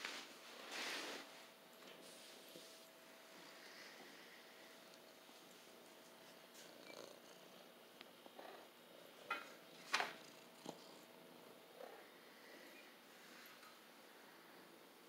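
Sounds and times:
fur rubbing against microphone: 0.0s - 2.8s
cat purring: 2.0s - 15.0s.

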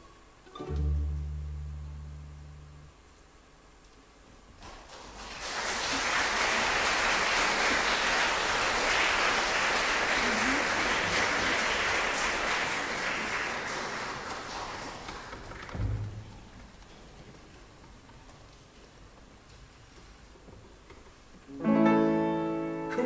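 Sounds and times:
audience applauding: 4.6s - 15.8s.

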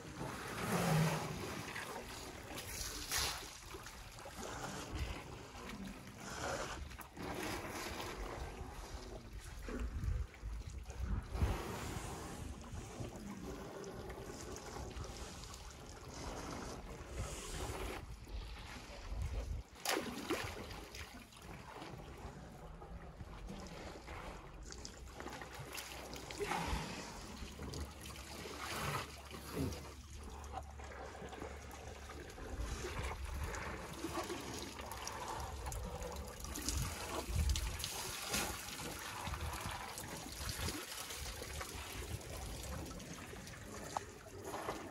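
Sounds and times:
water trickling and splashing: 0.0s - 44.9s
short splashes: 19.8s - 21.8s.

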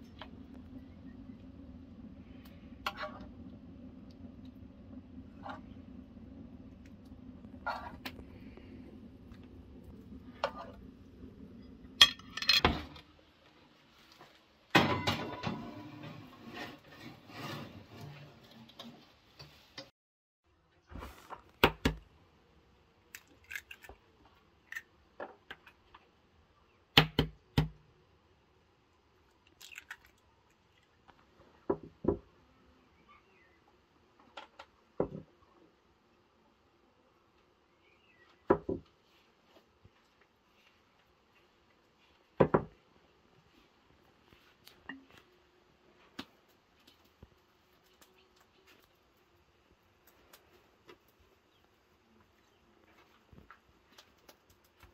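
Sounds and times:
kitchenware clinking and knocking: 12.0s - 13.0s, 14.8s - 16.3s.

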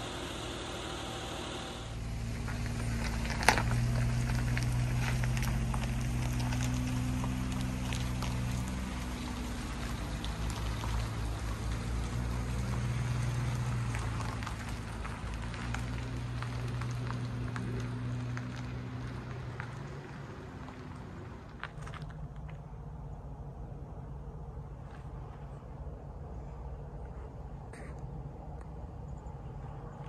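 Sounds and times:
tyres crackling over gravel: 0.0s - 22.9s
low engine hum: 0.0s - 30.0s.

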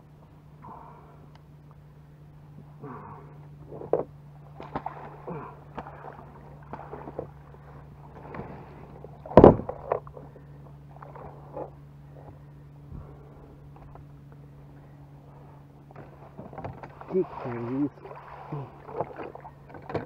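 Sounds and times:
bird thrashing and splashing in water: 4.4s - 10.2s, 15.9s - 20.0s.

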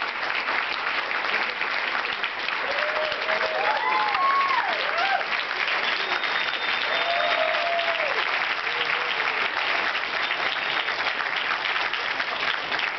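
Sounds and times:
audience applauding: 0.0s - 12.9s
voices calling out cheers: 2.6s - 5.3s, 6.0s - 9.4s.

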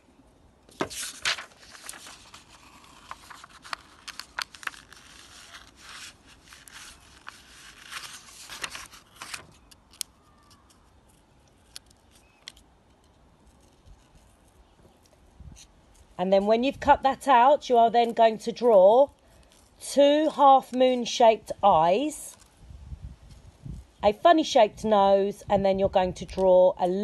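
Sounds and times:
paper rustling: 0.7s - 16.1s.

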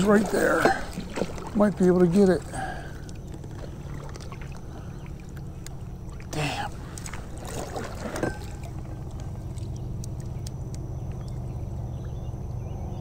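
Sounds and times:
paddle dipping through water: 0.0s - 12.5s
light water splashes and drips: 0.0s - 12.6s
steady low rumble: 0.0s - 13.0s.

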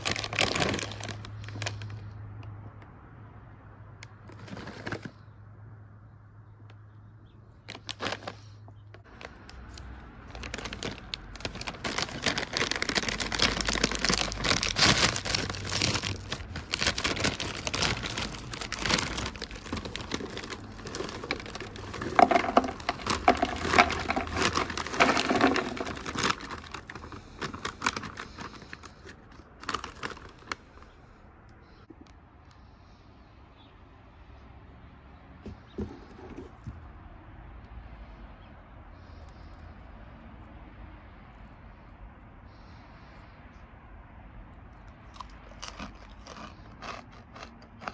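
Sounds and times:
snacks pouring into plastic box: 0.0s - 2.0s, 7.7s - 30.6s, 45.1s - 47.9s
plastic bag crinkling and tearing: 0.0s - 2.1s, 4.2s - 5.2s, 7.6s - 30.9s, 45.2s - 47.9s.

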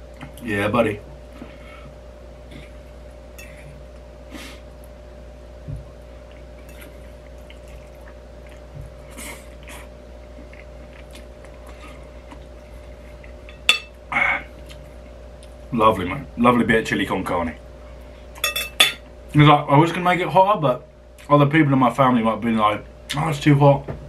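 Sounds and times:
steady low hum: 0.0s - 24.0s
wet chewing: 6.3s - 13.6s.

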